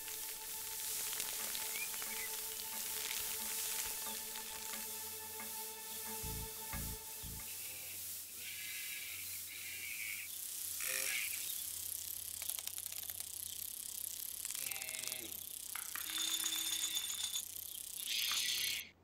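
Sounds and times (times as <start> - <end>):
wind-up key ratcheting clicks: 11.9 - 18.8.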